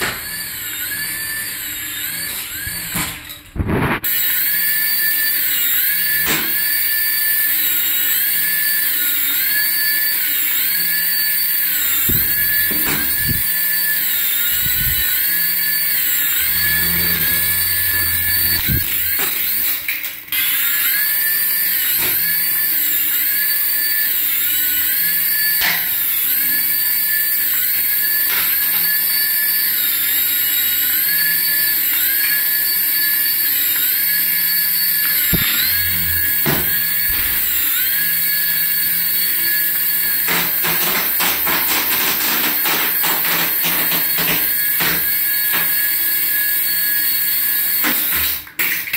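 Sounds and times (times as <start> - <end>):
toy helicopter rotors whining: 0.0 - 48.9.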